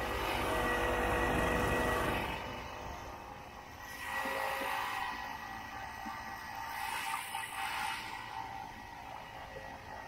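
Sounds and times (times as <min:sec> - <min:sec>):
snowmobile engine running: 0:00.0 - 0:03.0.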